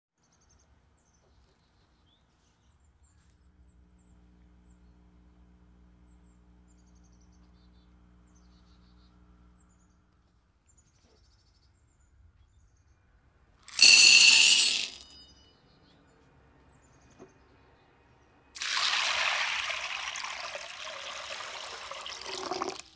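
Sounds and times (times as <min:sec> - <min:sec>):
low hum: 0:03.5 - 0:10.4
faint bird chirps: 0:06.0 - 0:13.2
chickpeas poured into glass bowl: 0:13.7 - 0:15.0, 0:18.6 - 0:22.9
glass ringing: 0:13.7 - 0:15.6.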